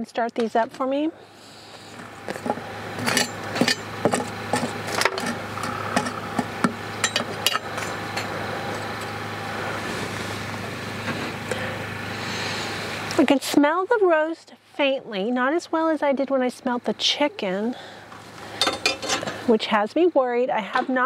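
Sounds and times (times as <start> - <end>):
charcoal clunking on iron lid: 18.6 - 19.4.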